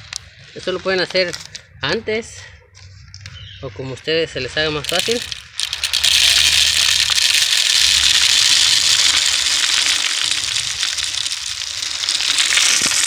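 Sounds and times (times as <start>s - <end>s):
birdseed pouring into plastic bottle: 4.8s - 13.0s.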